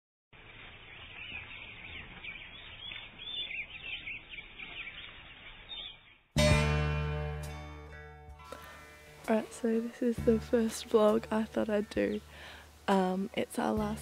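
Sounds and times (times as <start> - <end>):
small birds chirping: 0.4 - 6.3, 10.9 - 14.0
loud ringing music chord: 6.4 - 10.6.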